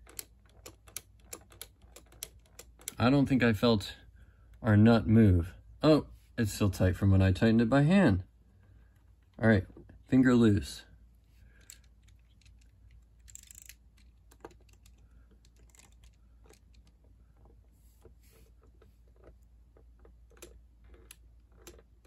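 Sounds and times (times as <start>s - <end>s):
plastic parts clicking and rattling: 0.0s - 3.0s, 11.4s - 22.0s.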